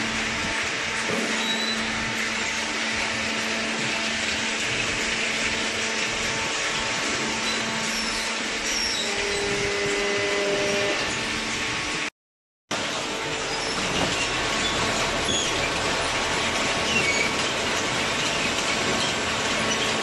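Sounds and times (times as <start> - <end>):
baler machinery whirring: 0.0 - 12.1
higher machine hum: 0.0 - 12.1.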